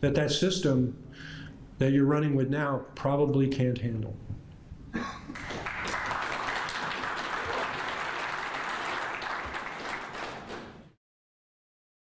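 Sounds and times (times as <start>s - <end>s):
audience applauding: 5.3s - 11.0s.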